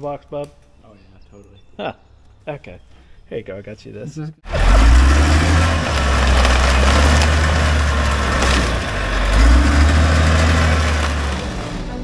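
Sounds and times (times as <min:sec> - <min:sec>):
diesel engine under load: 0:04.4 - 0:12.0
steel wheels crushing debris: 0:04.5 - 0:12.0.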